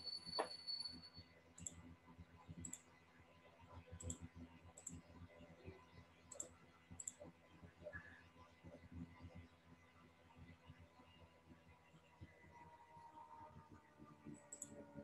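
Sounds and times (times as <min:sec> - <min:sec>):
computer mouse clicks: 0:01.6 - 0:01.8, 0:02.6 - 0:02.8, 0:04.0 - 0:05.0, 0:06.3 - 0:07.2, 0:14.4 - 0:14.8.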